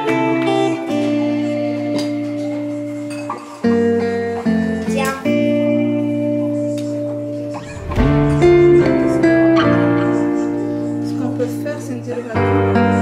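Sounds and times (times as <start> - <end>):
guitar chords: 5.4 - 11.0.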